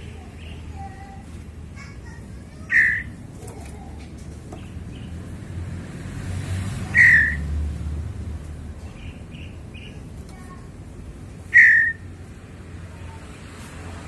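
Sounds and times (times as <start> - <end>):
bird loud short calls: 2.7 - 3.2, 11.5 - 12.0.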